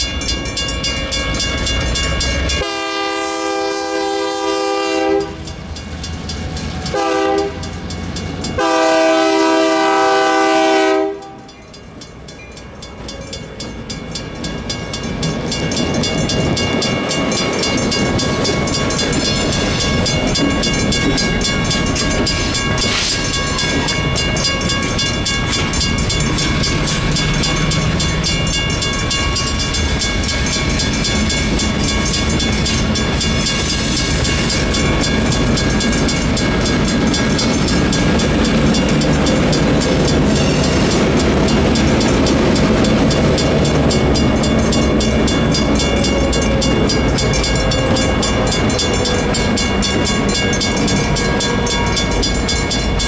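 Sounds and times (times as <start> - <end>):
passing train rumble: 0.0 - 53.0
railroad crossing bell ringing: 0.0 - 53.0.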